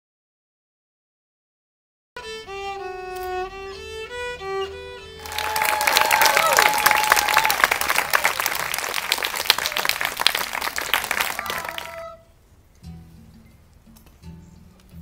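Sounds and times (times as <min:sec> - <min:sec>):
audience clapping: 0:05.2 - 0:12.1.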